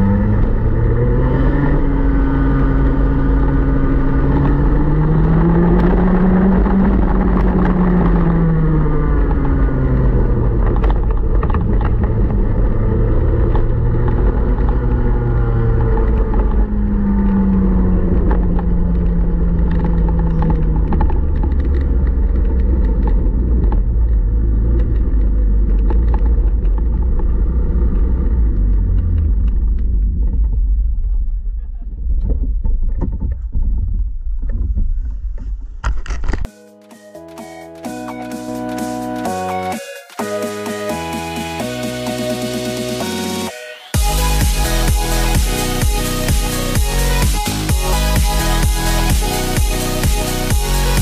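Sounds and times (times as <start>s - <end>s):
two-stroke kart engine: 0.0s - 31.6s
wind and road noise: 0.0s - 36.5s.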